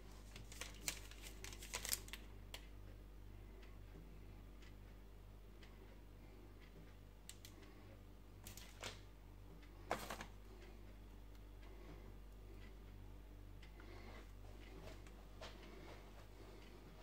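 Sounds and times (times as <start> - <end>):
faint electrical hum: 0.0 - 17.0
foil bags crinkling: 0.1 - 2.3, 8.4 - 9.0, 9.9 - 10.4.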